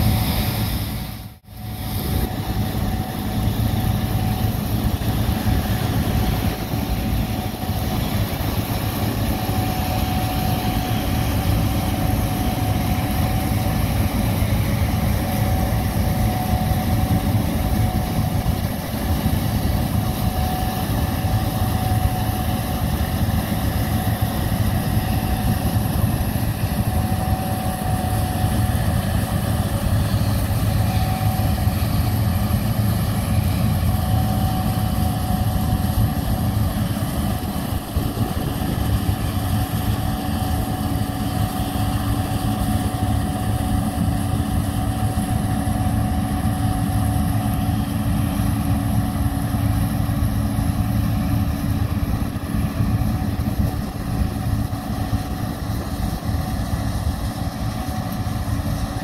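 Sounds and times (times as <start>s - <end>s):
combine harvester engine drone: 0.0s - 59.0s
thin steady whine: 0.0s - 59.0s.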